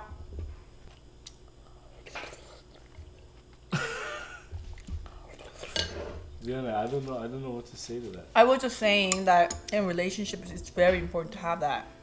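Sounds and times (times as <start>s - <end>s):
person chewing: 0.8s - 3.7s, 4.6s - 5.8s.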